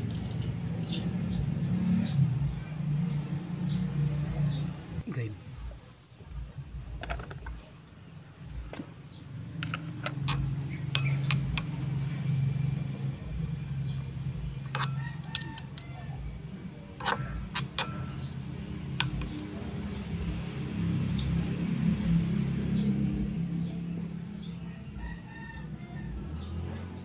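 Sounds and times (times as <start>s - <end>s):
metal utensil scraping wok: 9.6s - 12.3s, 14.6s - 15.7s, 16.9s - 18.5s.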